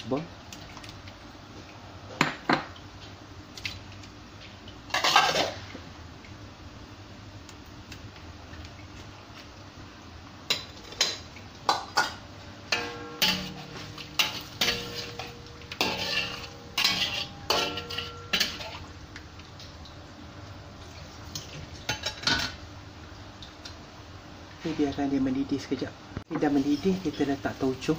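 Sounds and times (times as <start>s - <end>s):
metal spatula striking wok: 12.7s - 18.8s.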